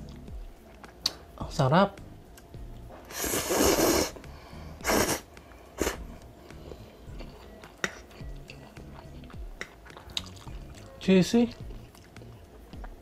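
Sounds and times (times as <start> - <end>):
person slurping noodles: 3.1 - 4.2, 4.8 - 6.2
chewing: 6.5 - 13.0.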